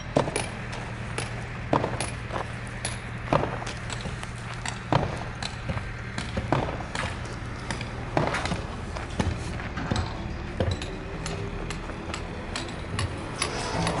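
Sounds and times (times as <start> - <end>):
low hum: 0.0 - 14.0
footsteps on dirt: 0.2 - 10.9.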